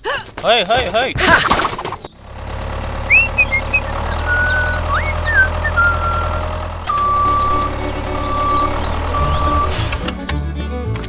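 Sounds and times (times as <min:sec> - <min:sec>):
idling engine rumble: 0:01.3 - 0:10.2
short chirping whistles: 0:03.1 - 0:06.4
steady high beep: 0:06.9 - 0:09.8.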